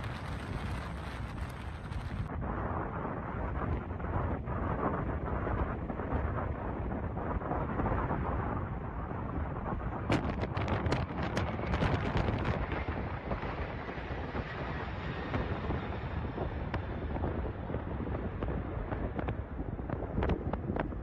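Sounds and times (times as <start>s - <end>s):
jet engines rumbling: 0.0s - 21.0s
wind buffeting microphone: 0.0s - 21.0s.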